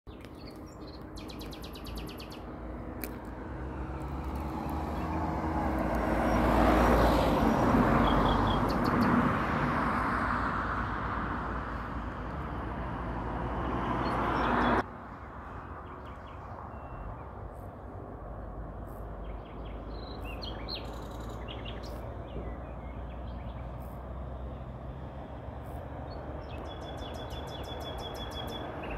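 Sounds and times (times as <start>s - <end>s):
outdoor background noise: 0.1s - 28.9s
passing vehicle: 0.2s - 28.9s.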